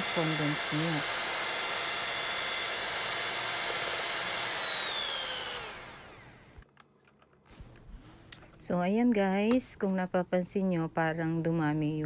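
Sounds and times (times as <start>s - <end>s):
electric hand mixer whine: 0.0s - 6.6s.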